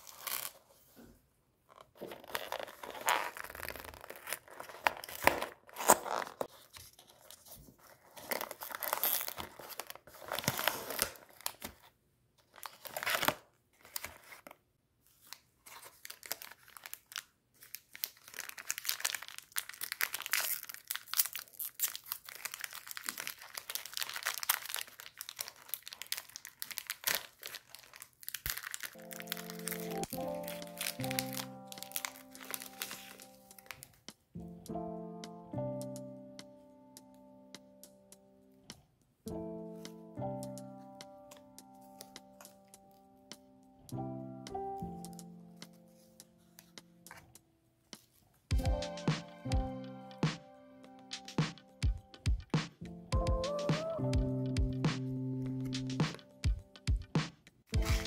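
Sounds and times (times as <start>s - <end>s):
foil packets crinkling and tearing: 0.0s - 0.7s, 2.0s - 14.6s, 15.2s - 34.0s, 57.8s - 58.0s.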